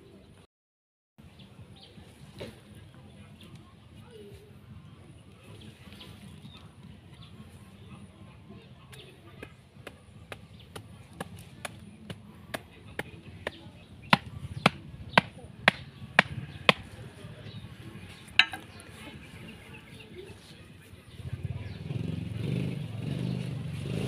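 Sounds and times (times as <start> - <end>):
axe striking bamboo stake: 14.1 - 16.9.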